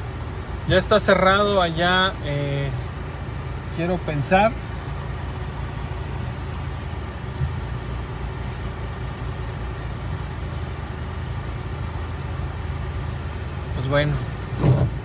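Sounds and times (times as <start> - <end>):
car engine running at low revs: 0.0 - 15.0.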